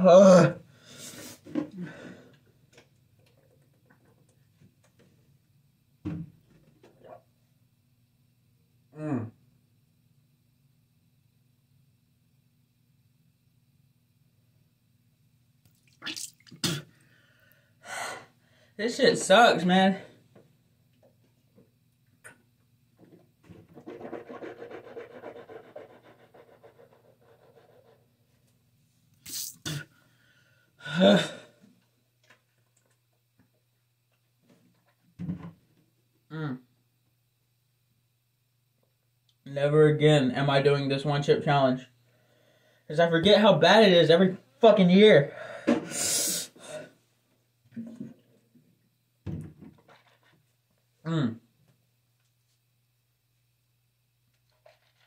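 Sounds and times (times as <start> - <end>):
person breathing hard: 0.7 - 2.4, 17.0 - 18.8, 42.1 - 42.9, 45.3 - 47.0.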